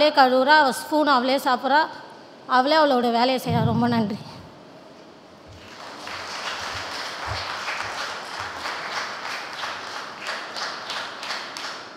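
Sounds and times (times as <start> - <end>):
low thuds: 3.5 - 4.5
congregation applauding: 5.5 - 11.9.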